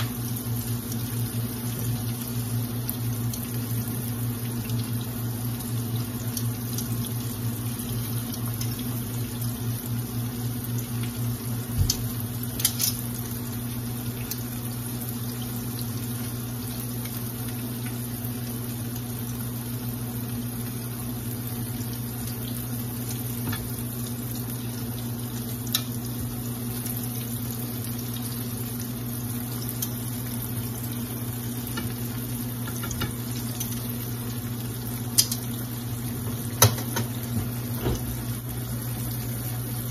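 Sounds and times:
onion rings sizzling in oil: 0.0 - 39.9
metal tongs clicking on pan: 12.6 - 13.0, 35.2 - 35.4.

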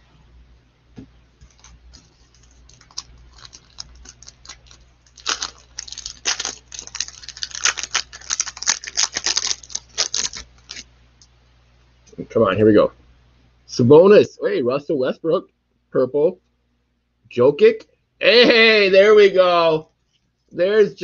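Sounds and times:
wrapper clicks and rustles: 1.4 - 10.9
wrapper crackling: 1.4 - 10.9.

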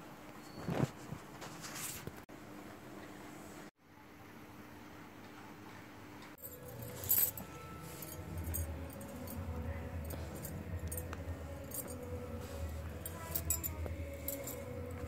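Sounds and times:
bangles clinking and jingling: 6.4 - 15.0
low steady hum: 6.4 - 15.0.

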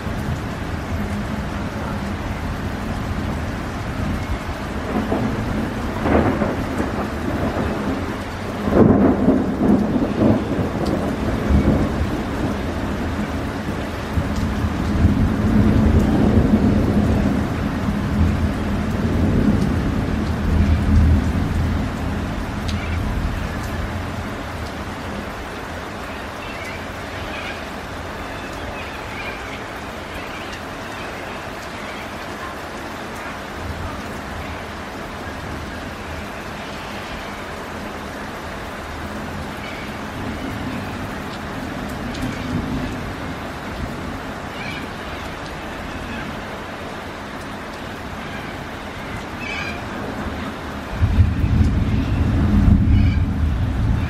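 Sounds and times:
thunder rumbling: 0.0 - 24.7, 49.4 - 54.0
rain falling: 0.0 - 54.0.

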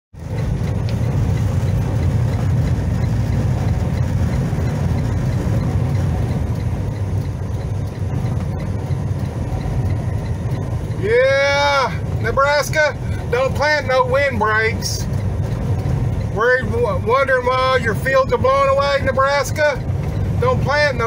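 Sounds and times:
truck engine and road rumble: 0.1 - 21.0
faint regular ticking: 0.2 - 21.0.

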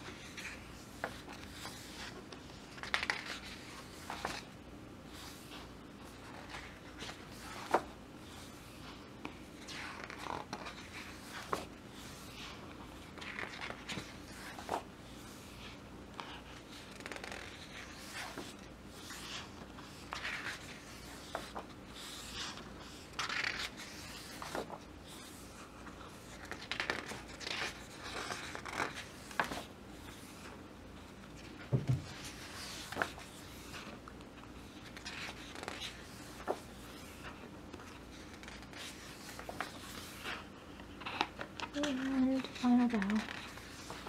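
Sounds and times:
book pages turning: 0.0 - 4.5, 5.1 - 44.0
soft low thump: 31.7 - 32.2.

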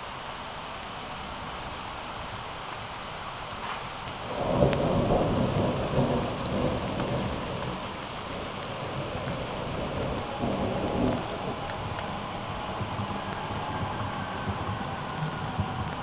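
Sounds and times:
steady rain: 0.0 - 16.0
thunder rumbling: 4.2 - 16.0.

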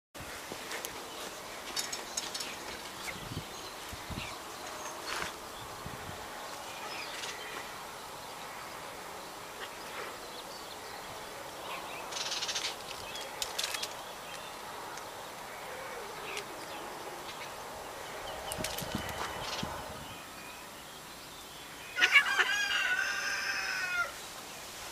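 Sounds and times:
background hiss: 0.2 - 24.9
rustling: 12.0 - 15.0.

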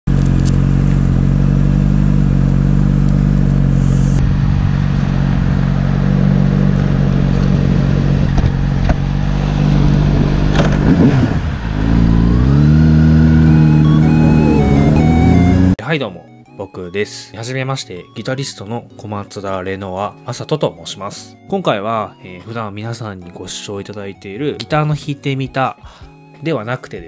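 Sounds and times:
motorcycle engine running: 0.1 - 15.8.

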